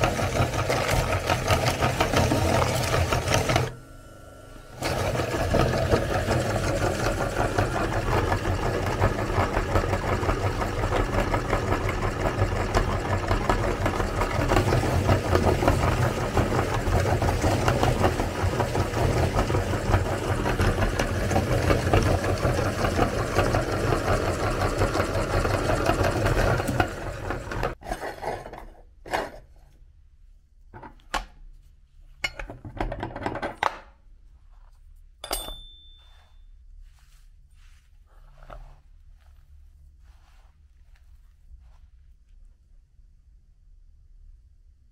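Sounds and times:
meat grinder crushing cookies: 0.0s - 3.7s, 4.7s - 28.3s
light metal clinks: 35.2s - 36.4s.

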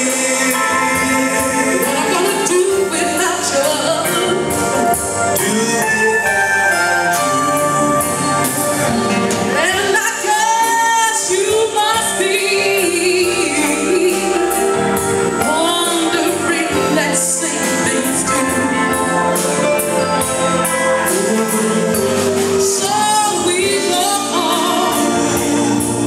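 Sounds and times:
woman singing: 0.0s - 4.8s, 9.5s - 19.6s, 20.8s - 26.0s
drums beating: 0.0s - 12.4s
electric guitars: 0.0s - 26.0s
live band playing: 0.0s - 26.0s.

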